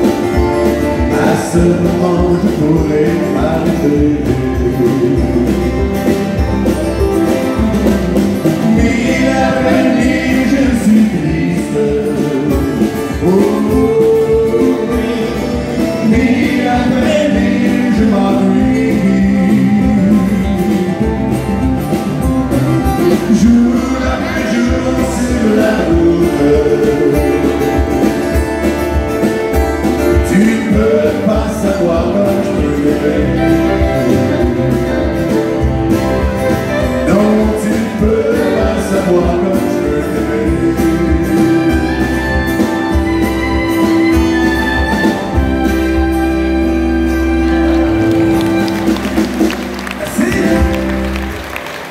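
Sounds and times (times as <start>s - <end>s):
man singing: 0.0s - 6.4s, 7.5s - 21.8s, 22.9s - 28.3s, 29.9s - 35.6s, 36.7s - 42.7s, 50.0s - 51.0s
fiddle: 0.0s - 51.9s
strummed acoustic guitars: 0.0s - 51.9s
ukulele: 0.0s - 51.9s.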